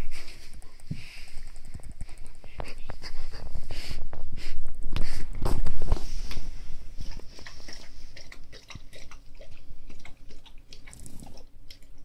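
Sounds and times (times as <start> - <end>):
guinea pig chewing: 7.0 - 12.0.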